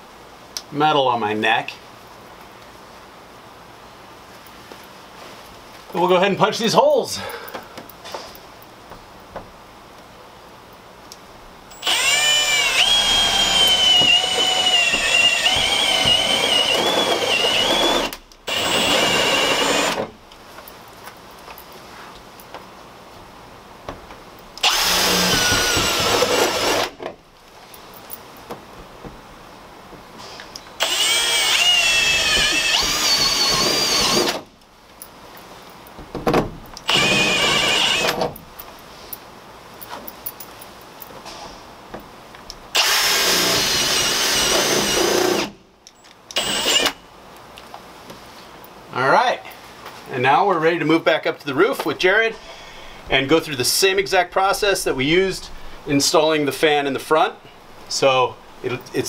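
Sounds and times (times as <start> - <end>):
cordless drill boring sheet steel: 11.7 - 20.1, 24.6 - 27.0, 30.8 - 34.4, 36.8 - 38.2, 42.8 - 45.6, 46.3 - 47.0.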